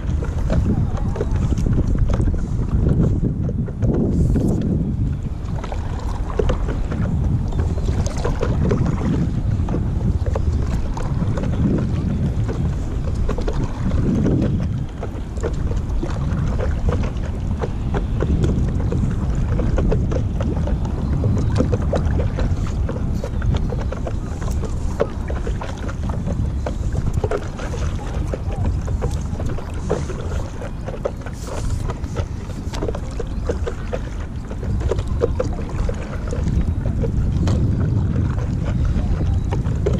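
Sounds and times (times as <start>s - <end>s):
wind noise on microphone: 0.0s - 39.9s
water splashing and dripping: 5.4s - 39.9s.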